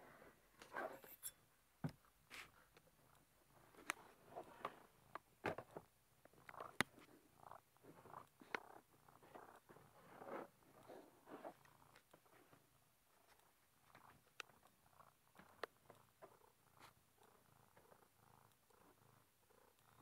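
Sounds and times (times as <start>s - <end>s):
faint clicks: 10.6s - 20.0s.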